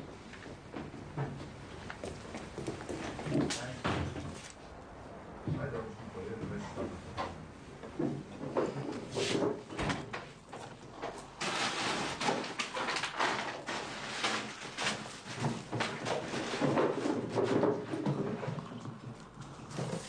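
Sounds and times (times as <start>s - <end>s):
objects clattering: 7.9s - 20.0s
cupboards and drawers opening: 8.0s - 18.5s.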